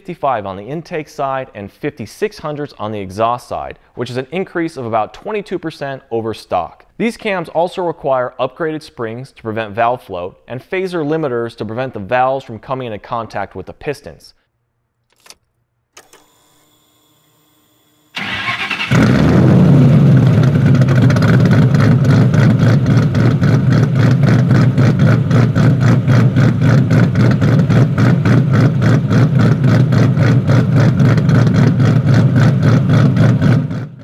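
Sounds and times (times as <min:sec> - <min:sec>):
car engine starting: 0:18.2 - 0:34.0
loping engine idle: 0:19.8 - 0:33.9.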